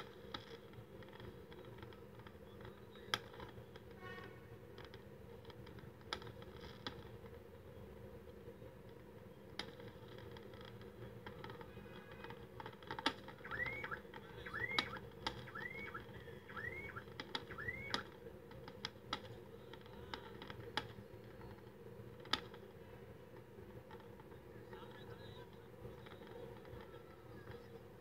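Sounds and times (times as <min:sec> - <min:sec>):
fireworks bangs and crackles: 0:00.0 - 0:28.0
fireworks whistles: 0:13.3 - 0:18.2.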